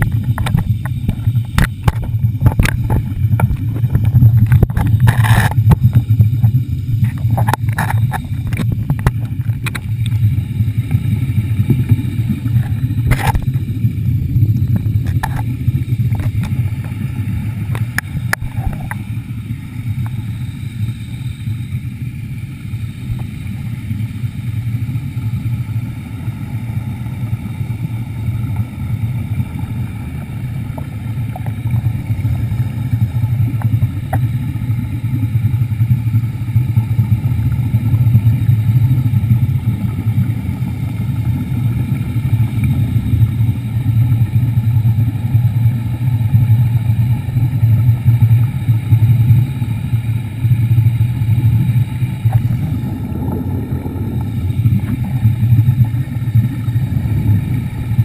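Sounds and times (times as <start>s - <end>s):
sharp clicks and knocks: 0.0s - 10.2s, 14.7s - 15.5s
underwater scooter motor humming: 0.0s - 58.0s.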